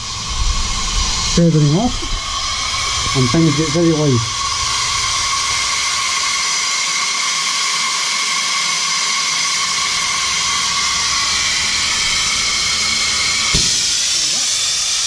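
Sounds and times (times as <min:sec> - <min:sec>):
steam hissing from safety valves: 0:00.0 - 0:15.0.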